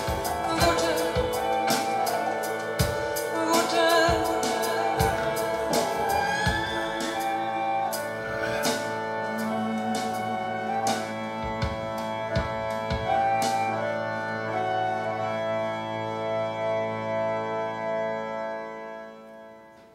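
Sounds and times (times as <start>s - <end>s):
instrumental music through speakers: 0.0s - 19.9s.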